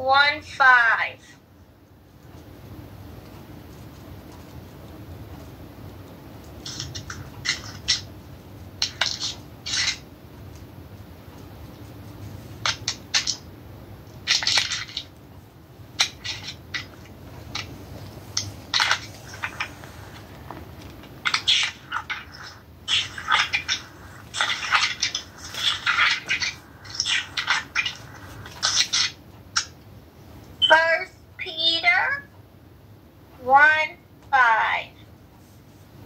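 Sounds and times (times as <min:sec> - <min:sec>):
paper pages rustling: 0:16.2 - 0:29.1.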